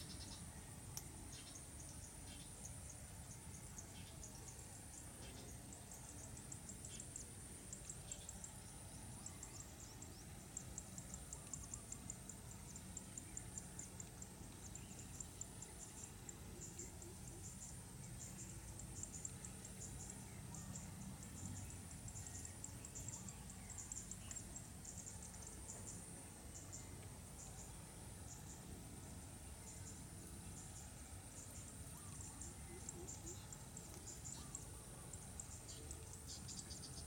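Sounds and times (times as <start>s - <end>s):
insects chirping in rapid pulses: 0.0s - 37.0s.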